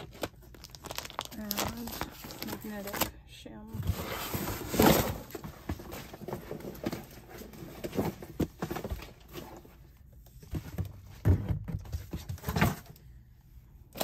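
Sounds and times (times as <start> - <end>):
plastic packaging rustling: 0.0 - 3.1.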